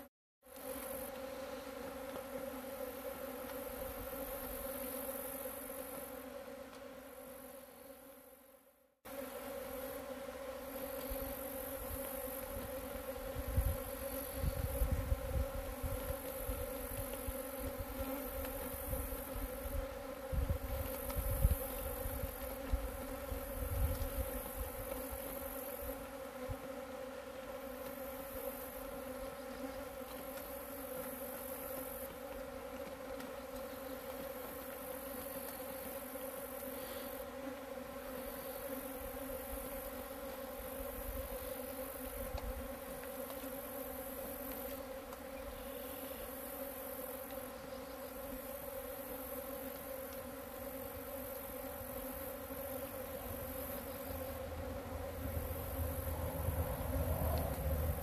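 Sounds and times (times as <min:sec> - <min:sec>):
bees buzzing: 0:00.0 - 0:58.0.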